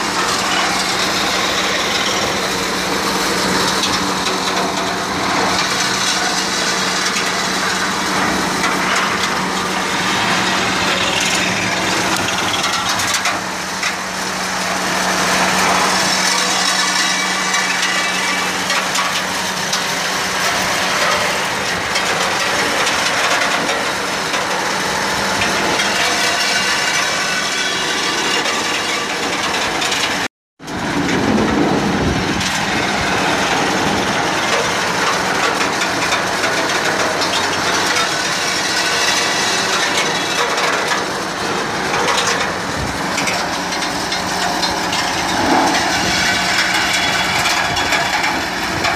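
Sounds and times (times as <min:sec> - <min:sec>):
harvester mechanical clatter: 0:00.0 - 0:48.9
tractor engine running: 0:00.0 - 0:48.9.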